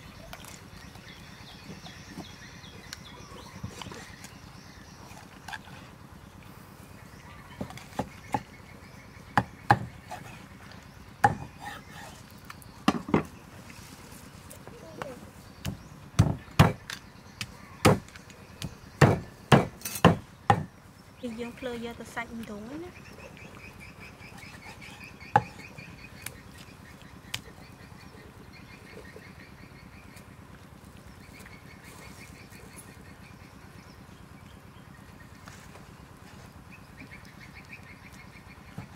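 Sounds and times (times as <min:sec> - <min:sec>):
cleaver chopping on wooden block: 0:09.4 - 0:09.9, 0:11.2 - 0:11.5, 0:15.6 - 0:20.7, 0:25.3 - 0:25.6
steady chirping: 0:14.7 - 0:35.4.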